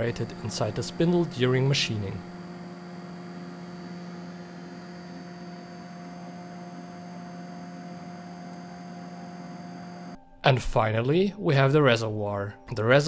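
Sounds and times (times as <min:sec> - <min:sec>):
computer fans humming: 0:00.0 - 0:10.2.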